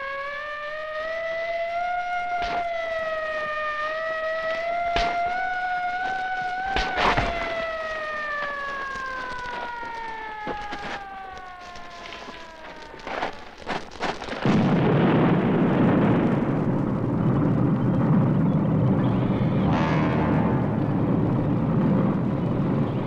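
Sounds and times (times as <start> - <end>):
sharp knocks: 2.4 - 2.7, 4.8 - 5.5
long tone sliding down: 19.1 - 21.9.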